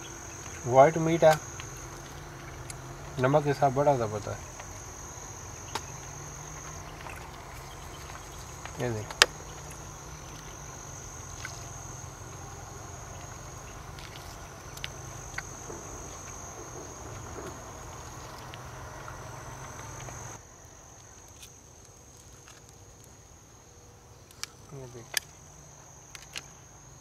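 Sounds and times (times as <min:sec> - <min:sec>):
low background rumble: 0:00.0 - 0:20.4
insects trilling: 0:00.0 - 0:27.0.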